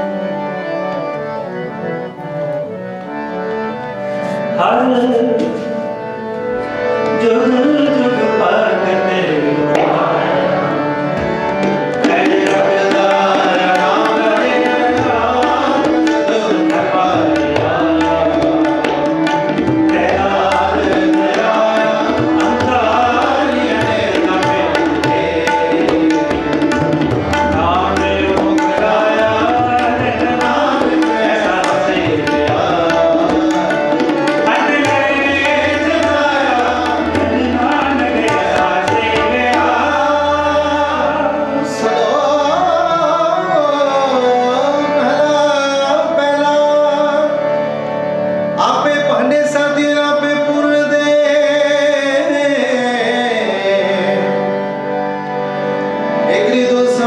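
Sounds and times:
harmonium: 0.0s - 57.0s
tabla playing: 4.2s - 57.0s
person singing: 12.0s - 19.0s, 27.4s - 47.4s.

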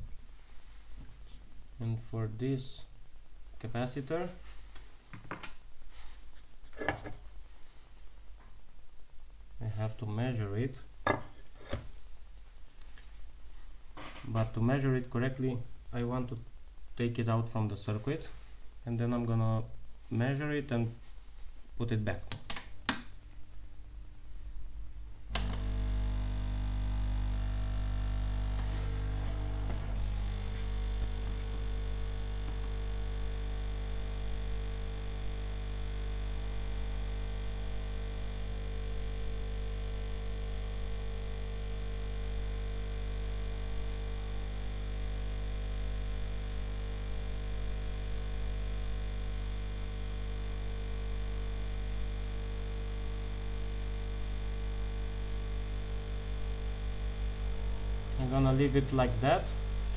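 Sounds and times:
hot air fan humming: 25.3s - 59.9s
switch click: 25.4s - 25.7s.

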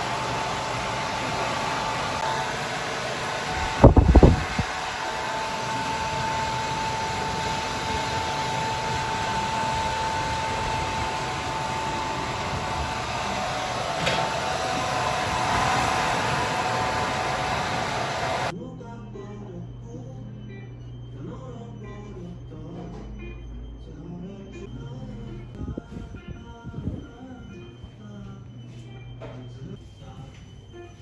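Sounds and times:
hair dryer blowing: 0.0s - 18.5s
low rumble: 24.7s - 27.4s.

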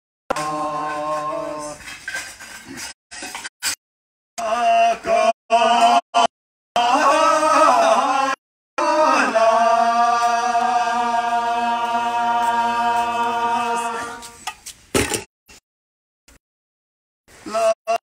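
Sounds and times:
group singing unaccompanied chant: 0.3s - 1.8s, 4.4s - 14.4s.

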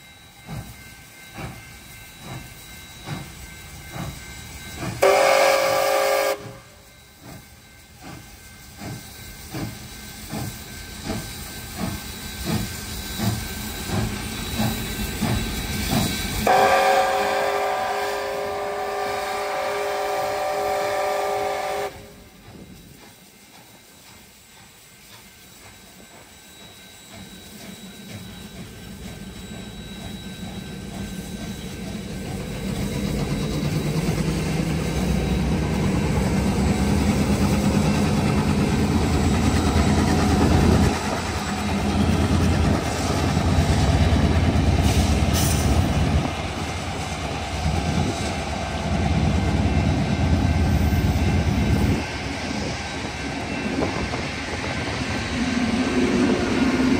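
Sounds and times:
steam train rumbling past: 0.0s - 56.9s
train whistle chord: 5.0s - 6.9s, 16.4s - 22.3s.

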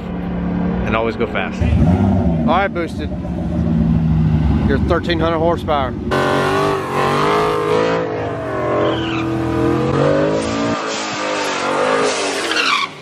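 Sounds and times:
car engine revving high: 1.6s - 12.9s
tires squealing on pavement: 6.1s - 13.0s.

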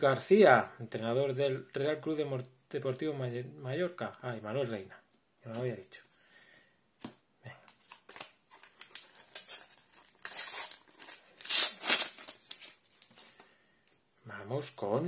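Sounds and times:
wrapper crinkling and tearing: 7.8s - 13.4s.

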